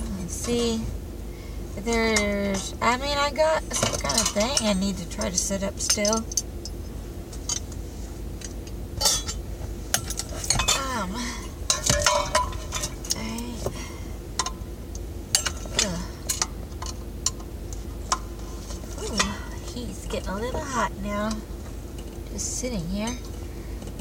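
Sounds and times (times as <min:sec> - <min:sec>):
car running hum: 0:00.0 - 0:24.0
metallic clinks and knocks: 0:11.7 - 0:13.8.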